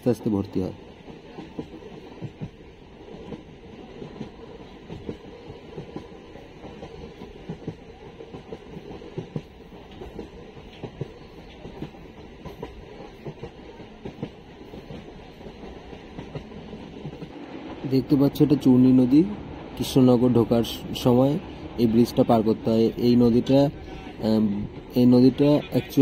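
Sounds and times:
train running rumble: 0.0s - 26.0s.

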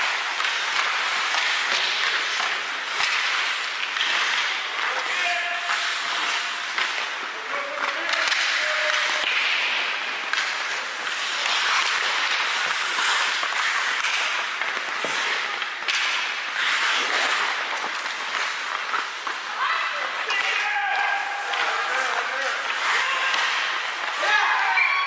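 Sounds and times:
hockey sticks and puck clacking: 0.0s - 25.0s
skate blades scraping ice: 0.0s - 25.0s.

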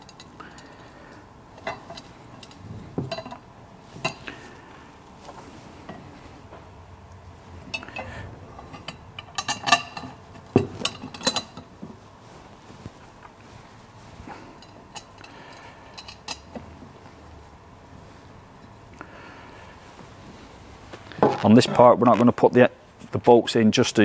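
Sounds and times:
metal parts clinking: 10.8s - 11.6s.

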